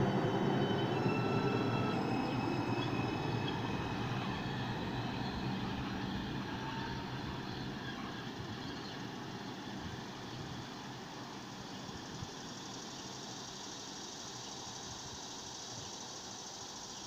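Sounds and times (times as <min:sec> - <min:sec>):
rising traction motor tones: 0:00.0 - 0:09.1
train wheels rumbling on rails: 0:00.0 - 0:14.0.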